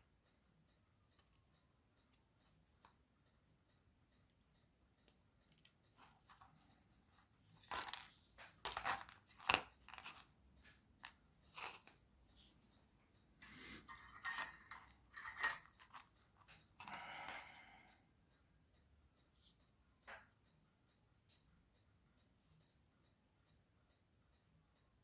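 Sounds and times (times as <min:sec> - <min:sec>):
small tools clicking and scraping: 0:05.0 - 0:12.8, 0:13.4 - 0:18.0.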